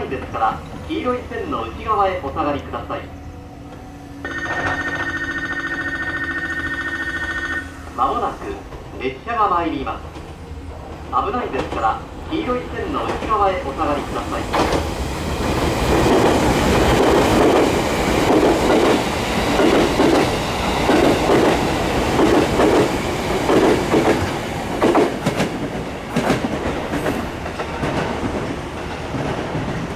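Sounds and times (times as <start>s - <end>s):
train wheels clicking over rail joints: 14.4s - 29.9s.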